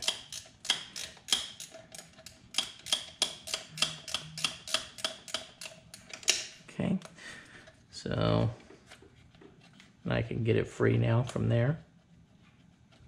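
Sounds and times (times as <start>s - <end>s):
ratcheting wrench clicking: 0.0s - 6.5s.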